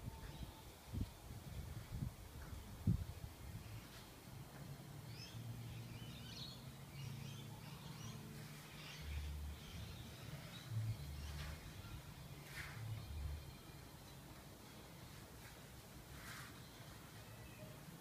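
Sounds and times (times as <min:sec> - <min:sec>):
birds chirping faintly: 0:05.0 - 0:15.4, 0:16.0 - 0:18.0.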